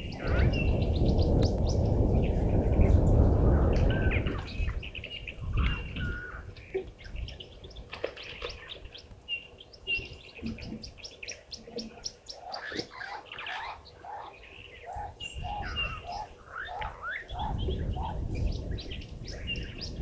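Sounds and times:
low rumble: 0.0s - 6.1s
birds chirping and twittering: 0.0s - 20.0s.

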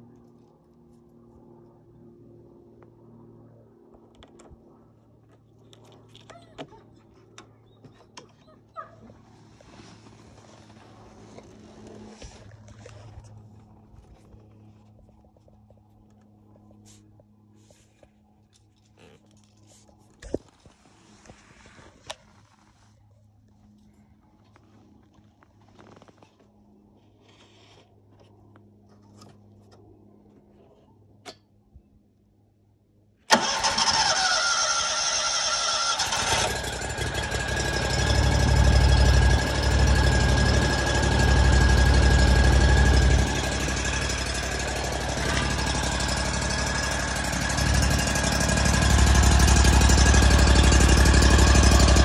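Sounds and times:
electric starter cranking: 33.3s - 52.0s
mower engine running: 33.3s - 52.0s.

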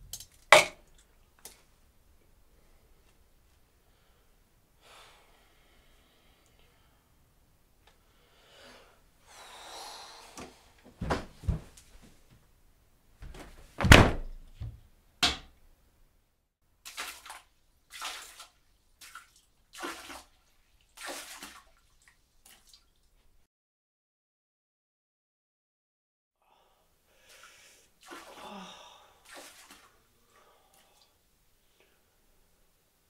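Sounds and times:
knocks and thuds: 13.2s - 15.5s.

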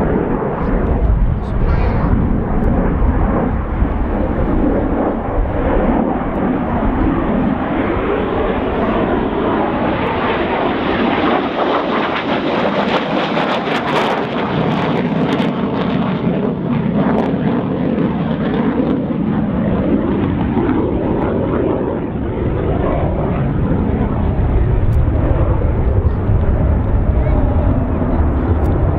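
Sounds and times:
jet engine crackling: 0.0s - 15.8s
jet fighter flying overhead: 0.0s - 28.9s.

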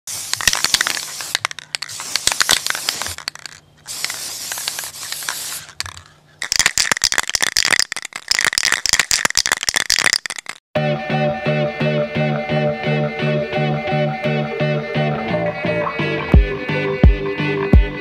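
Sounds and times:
spray paint can rattling and hissing: 0.1s - 10.6s.

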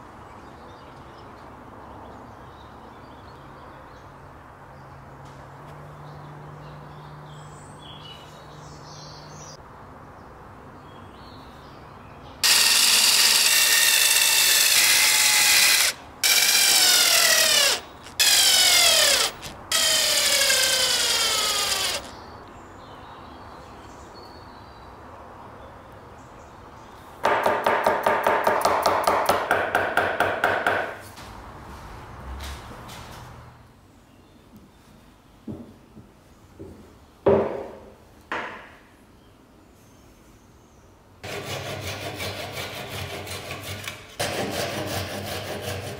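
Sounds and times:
drill driving screws into wood: 12.4s - 22.1s.

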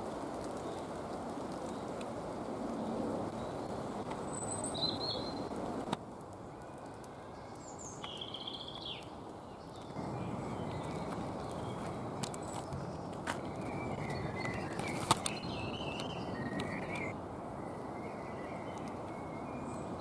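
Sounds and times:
small songbirds chirping: 2.7s - 20.0s
footsteps on leafy dirt path: 9.9s - 17.1s
trilled bird call: 13.5s - 17.2s.

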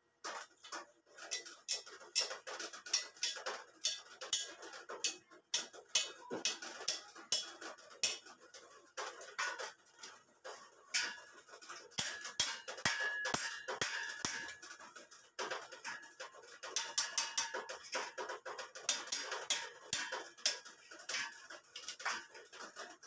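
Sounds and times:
metal rod knocking on steel tube: 12.0s - 14.6s.

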